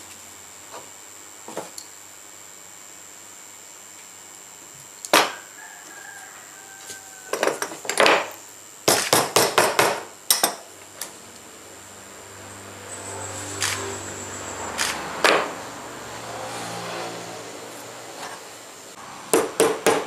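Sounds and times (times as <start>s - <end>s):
hammer knocking on wooden bench: 8.9s - 10.1s, 19.3s - 20.0s
faint high whine: 10.8s - 19.2s.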